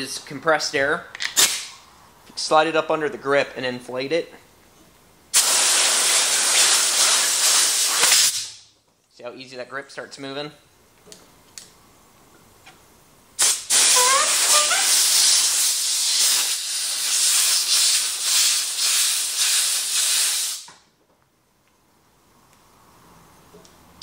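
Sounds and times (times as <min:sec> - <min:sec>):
compressed air blowgun hissing: 0:05.4 - 0:08.6, 0:13.4 - 0:20.7
rubber grip squeaks: 0:13.8 - 0:15.0.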